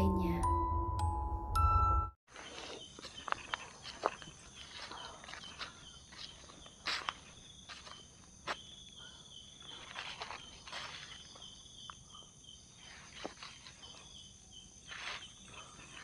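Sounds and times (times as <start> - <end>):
footsteps on dry leaves: 2.3 - 8.6, 9.6 - 11.6, 14.8 - 15.4
insects chirring: 2.3 - 16.0.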